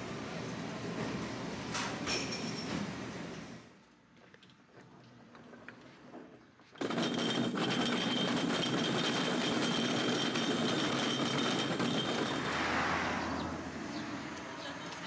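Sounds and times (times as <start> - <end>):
cart wheels rattling on tiles: 6.8 - 12.6.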